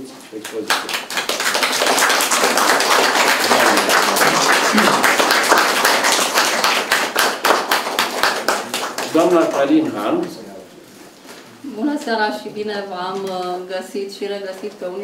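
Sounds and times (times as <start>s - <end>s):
crowd applauding: 0.4s - 9.8s.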